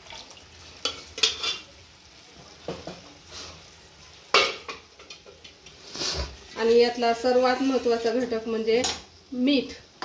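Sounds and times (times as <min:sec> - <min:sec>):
ladle scraping metal pot: 0:00.8 - 0:01.7.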